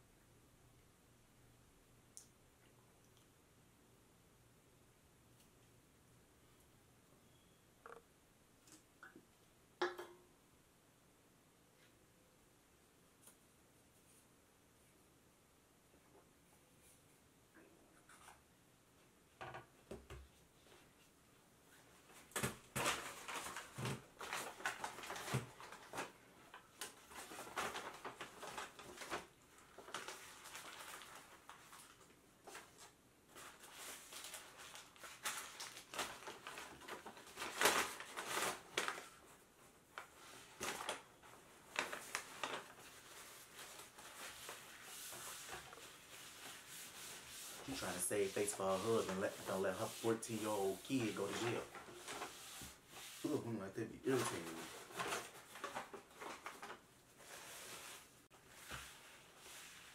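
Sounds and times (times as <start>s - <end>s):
paper bags crinkling: 22.4s - 39.4s, 40.0s - 52.6s, 54.0s - 59.9s.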